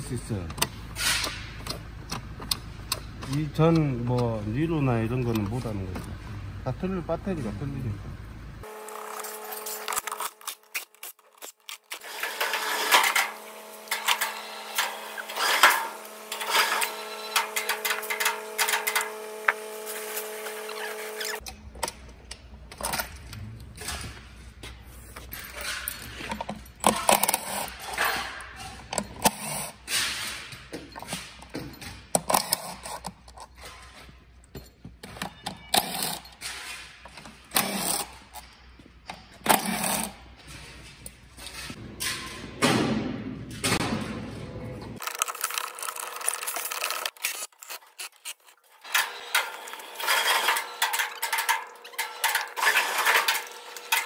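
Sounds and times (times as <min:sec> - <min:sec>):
plastic and metal clatter: 0:45.0 - 0:54.0.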